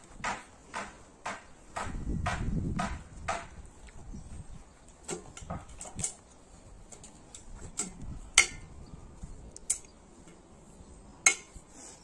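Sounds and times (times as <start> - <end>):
metal mesh clicks and knocks: 5.0 - 6.2, 6.9 - 8.6.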